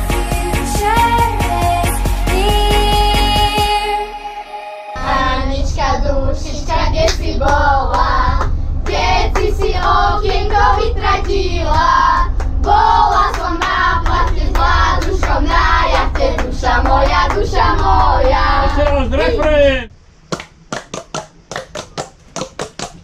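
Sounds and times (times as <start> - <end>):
children singing in unison: 0.0 - 8.3
low rumble: 0.0 - 19.9.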